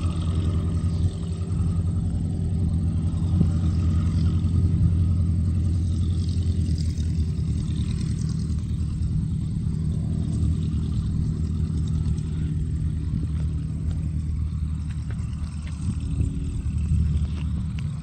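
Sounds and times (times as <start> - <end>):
small plane engine and propeller: 0.0 - 18.0.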